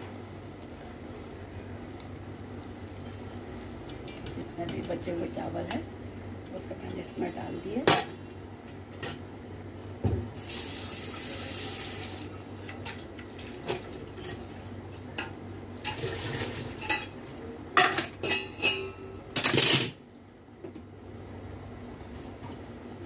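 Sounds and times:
metal pots and utensils clinking: 0:13.6 - 0:17.2, 0:17.8 - 0:20.0.

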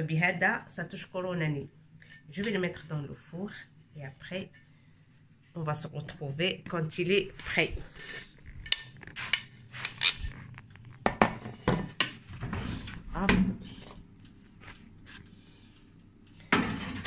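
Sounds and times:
metal pan knocking on oven rack: 0:11.0 - 0:12.2, 0:16.5 - 0:17.0.

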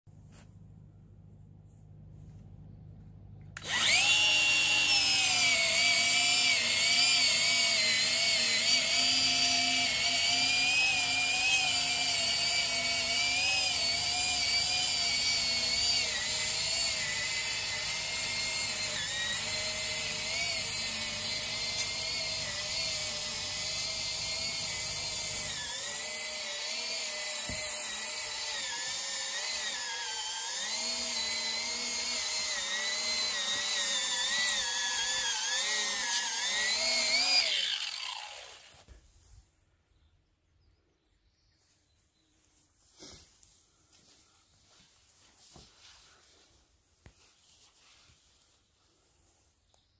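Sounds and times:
angle grinder cutting turf: 0:03.6 - 0:39.0.

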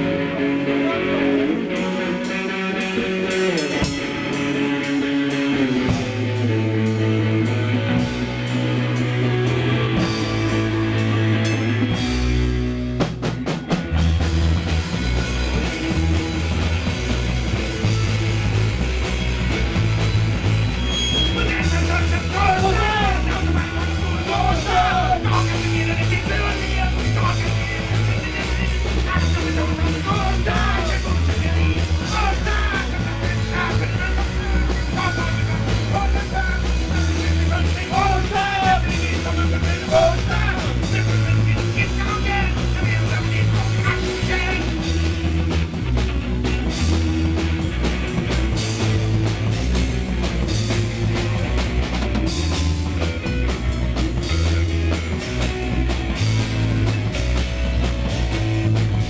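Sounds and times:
man singing: 0:00.0 - 0:07.9, 0:21.1 - 0:45.2
bass guitar: 0:00.0 - 0:59.0
drums: 0:00.0 - 0:59.0
electric guitar riff: 0:00.0 - 0:59.0.

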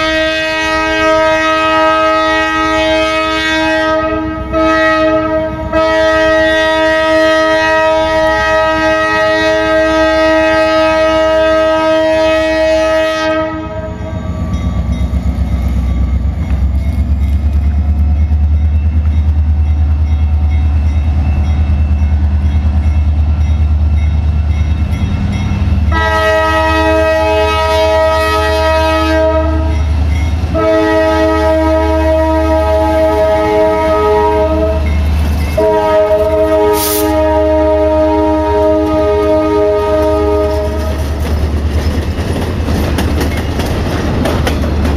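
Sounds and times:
locomotive air horn chord: 0:00.0 - 0:14.4, 0:25.9 - 0:29.9, 0:30.5 - 0:35.0, 0:35.6 - 0:41.0
locomotive engine rumble: 0:11.1 - 0:44.9.

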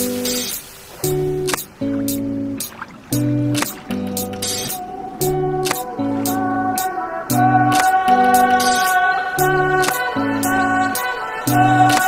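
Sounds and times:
instrumental music with drum beat: 0:00.0 - 0:09.0, 0:09.8 - 0:10.1.

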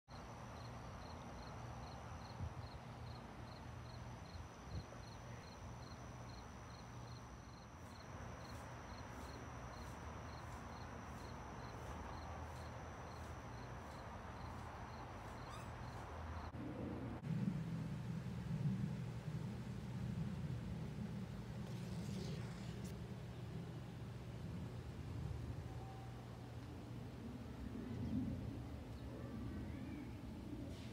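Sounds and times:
higher pulsing insect call: 0:00.1 - 0:16.6
low steady hum: 0:00.1 - 0:30.9
insect chirping rhythmically: 0:00.2 - 0:16.5
insects trilling: 0:00.2 - 0:16.6.

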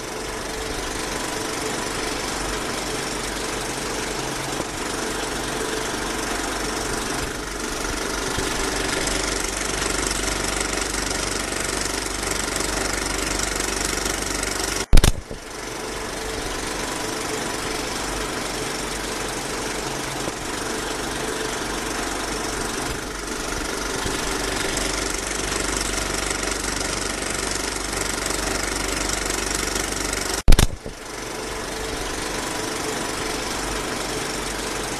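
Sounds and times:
mechanical running hum: 0:00.0 - 0:34.9
sharp loud click: 0:14.8 - 0:15.5, 0:30.4 - 0:31.0.

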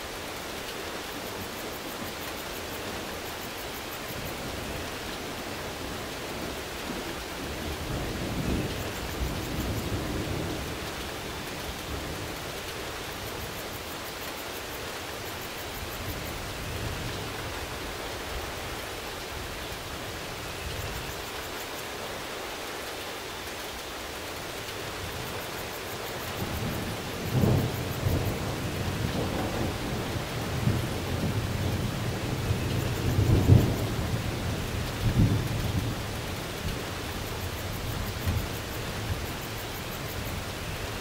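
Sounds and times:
steady rain: 0:00.0 - 0:41.0
rolling thunder: 0:26.4 - 0:39.4.

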